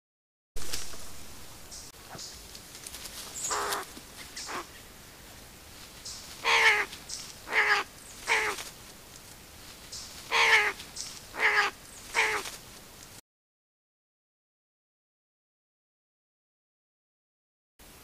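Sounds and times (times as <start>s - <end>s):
animal harsh calls: 3.4s - 4.8s, 6.4s - 6.9s, 7.5s - 8.6s, 10.3s - 12.5s.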